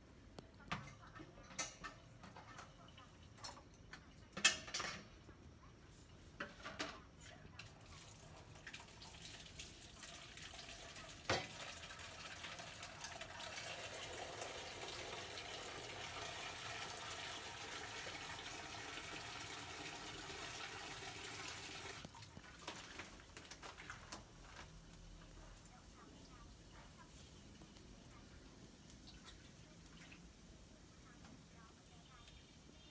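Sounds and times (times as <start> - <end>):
food sizzling in hot oil: 7.6 - 32.9.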